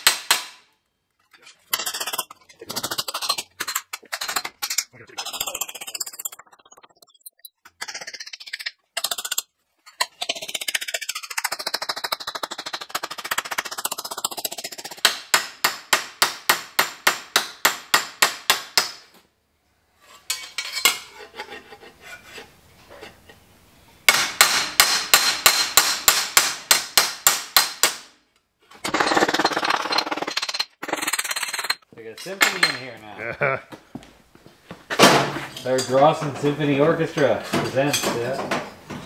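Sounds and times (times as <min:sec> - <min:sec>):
rough metal noise: 0:20.0 - 0:23.5, 0:28.7 - 0:33.0.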